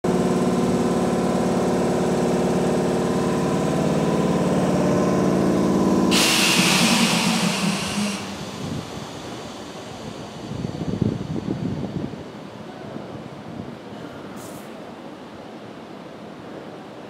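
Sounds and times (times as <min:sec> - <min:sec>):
train equipment humming: 0:00.1 - 0:13.8
compressed air hiss: 0:06.1 - 0:10.3.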